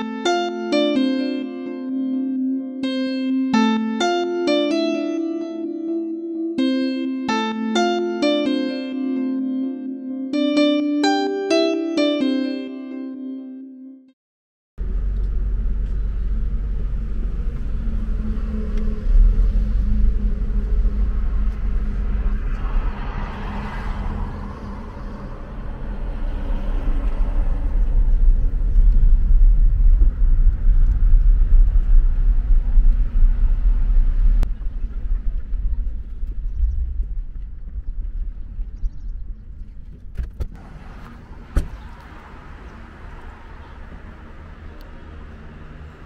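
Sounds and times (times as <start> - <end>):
heavy low vehicle rumble: 14.8 - 46.0
rushing noise: 16.7 - 36.1.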